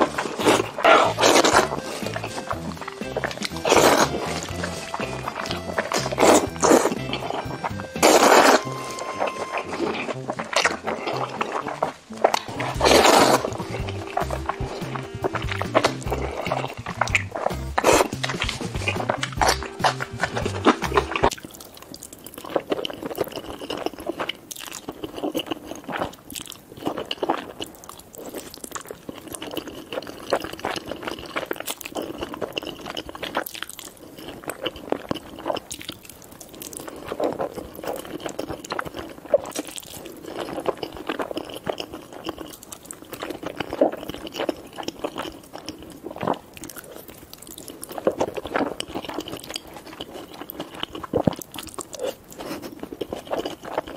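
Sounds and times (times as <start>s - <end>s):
slurping noodles: 0.0s - 21.5s
chewing: 0.0s - 53.9s
crunchy bites: 0.0s - 53.9s.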